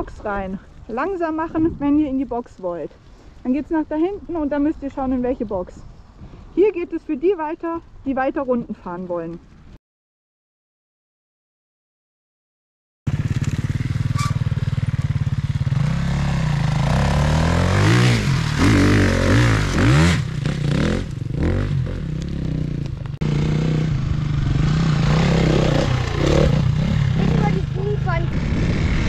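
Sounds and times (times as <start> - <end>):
motorcycle engine revving: 13.1 - 29.0.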